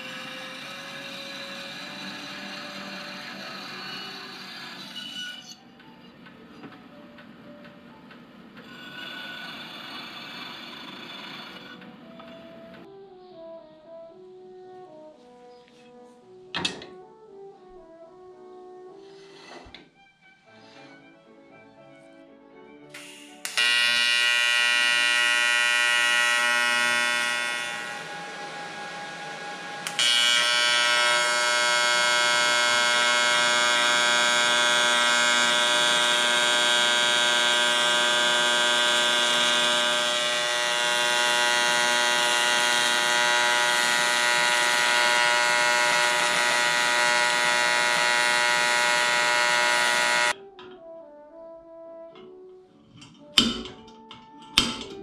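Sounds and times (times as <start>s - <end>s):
welding arc buzz: 0.0s - 5.5s, 8.6s - 12.8s, 23.0s - 50.4s.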